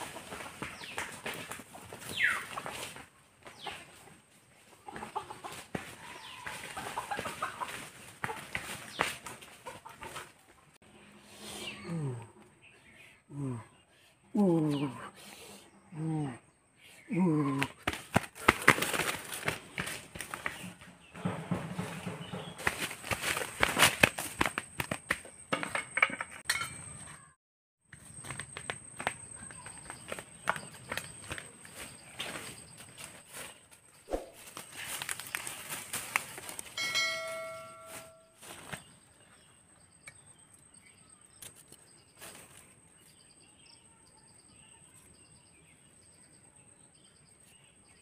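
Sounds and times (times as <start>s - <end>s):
chicken clucking: 3.6s - 10.7s
twigs and leaves crackling underfoot: 4.9s - 10.3s, 17.8s - 20.8s, 22.6s - 25.2s, 29.0s - 39.4s, 41.2s - 43.1s.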